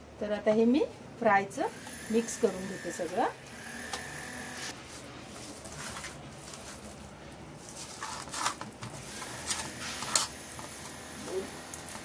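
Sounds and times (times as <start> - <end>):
wet squishes of mixing: 4.8 - 8.8.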